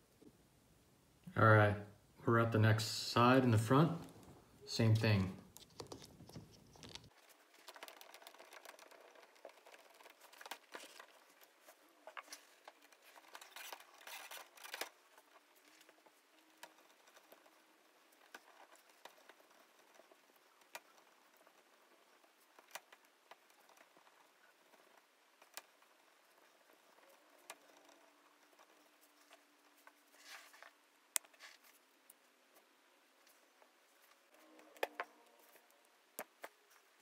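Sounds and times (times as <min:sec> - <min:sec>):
small plastic clicks: 0:05.5 - 0:11.2.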